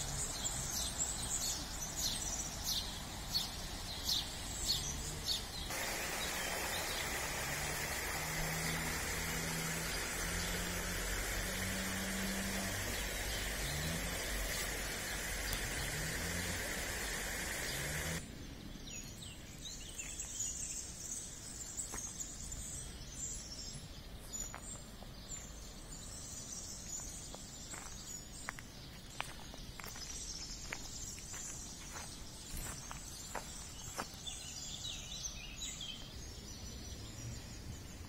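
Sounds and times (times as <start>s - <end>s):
steady hiss: 0.0s - 18.2s
small birds chirping: 0.0s - 38.0s
low hum rising in pitch: 5.7s - 18.2s.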